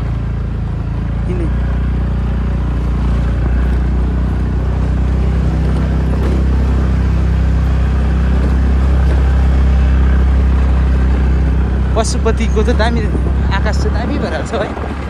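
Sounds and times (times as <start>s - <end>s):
vehicle engine and road rumble: 0.0s - 15.0s.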